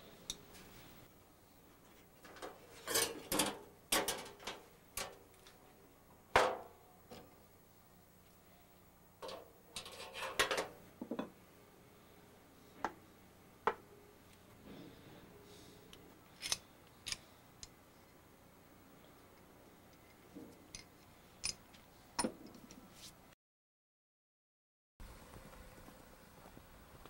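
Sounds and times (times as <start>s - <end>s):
metal knocks and clatters: 2.2s - 5.2s.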